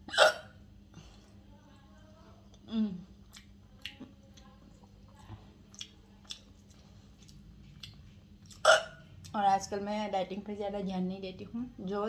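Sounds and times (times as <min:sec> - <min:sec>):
woman chewing food: 0:00.0 - 0:09.4.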